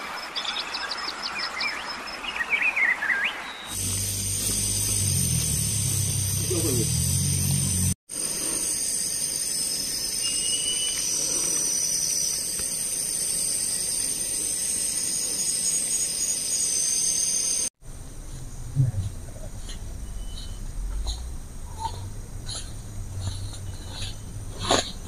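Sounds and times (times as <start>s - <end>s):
insects shrilling drone: 3.7s - 18.5s.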